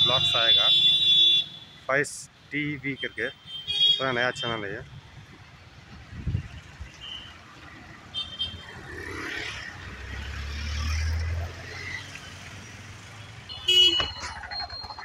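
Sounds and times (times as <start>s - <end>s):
traffic engines and tyres: 0.0s - 15.0s
vehicle passing close: 8.6s - 13.2s
high beeps: 14.0s - 15.0s.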